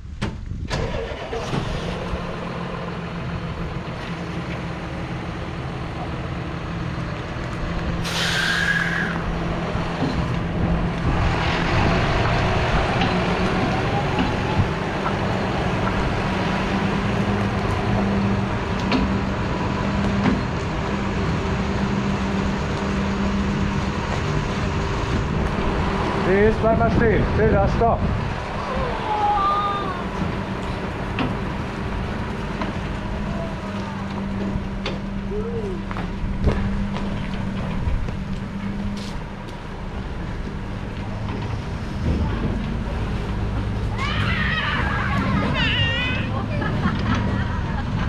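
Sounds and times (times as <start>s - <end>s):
diesel engine starting and running: 0.0s - 48.0s
air hissing: 8.0s - 9.3s.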